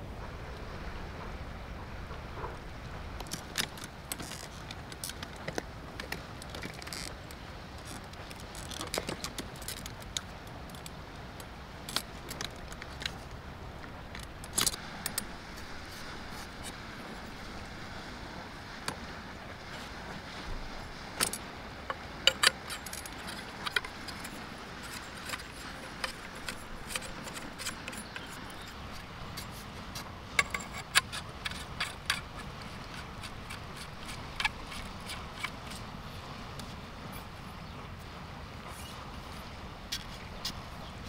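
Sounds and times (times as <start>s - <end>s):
steady background hiss: 0.0s - 41.0s
metal pole sections clicking: 3.2s - 13.3s, 21.2s - 35.9s.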